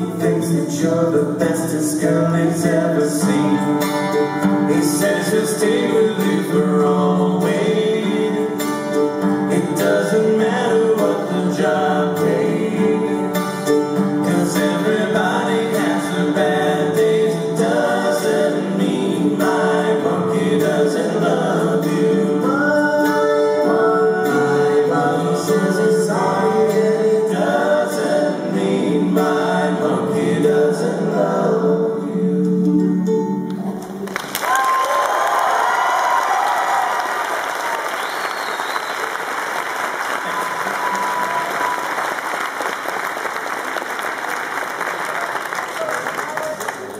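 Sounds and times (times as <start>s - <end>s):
voices singing in harmony: 0.0s - 33.5s
acoustic guitar: 0.0s - 34.3s
ukulele: 0.0s - 34.3s.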